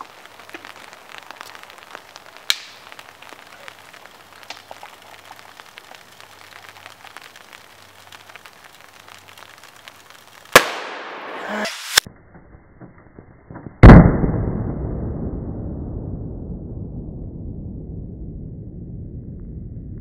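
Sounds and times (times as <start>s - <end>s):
sharp crack: 0.0s - 12.1s.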